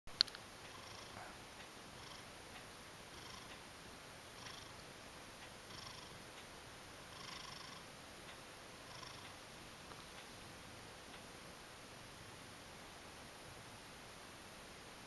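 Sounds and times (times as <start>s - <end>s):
cat purring: 0.7s - 3.6s, 4.3s - 4.9s, 5.5s - 7.9s, 8.8s - 10.4s.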